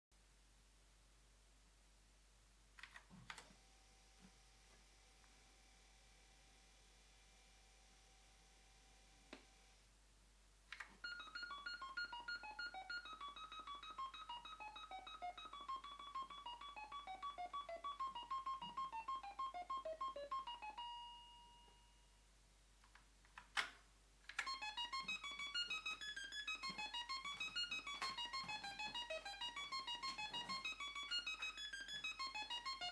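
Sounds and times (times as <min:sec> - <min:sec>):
electronic organ tones: 0:10.7 - 0:22.1, 0:24.3 - 0:32.9.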